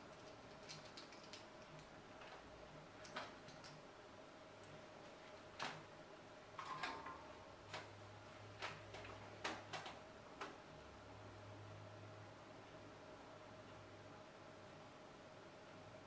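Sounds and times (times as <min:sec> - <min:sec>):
small tools clicking on a mat: 0:00.1 - 0:01.9.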